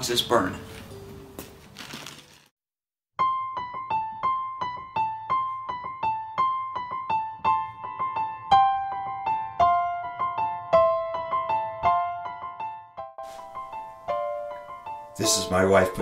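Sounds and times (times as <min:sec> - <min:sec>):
gentle piano melody: 0:03.2 - 0:16.0.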